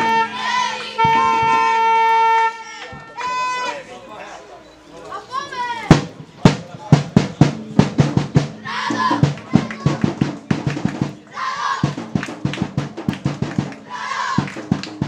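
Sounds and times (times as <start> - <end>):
crowd shouting a chant: 0.0 - 3.9, 8.5 - 10.0, 11.2 - 12.0, 13.8 - 14.6
drum beaten in fast rhythm: 0.9 - 2.0, 5.9 - 15.0.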